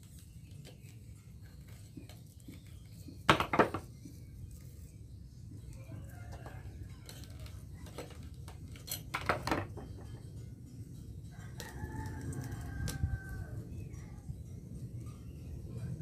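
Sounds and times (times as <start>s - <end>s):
rooster crowing: 11.3s - 13.6s.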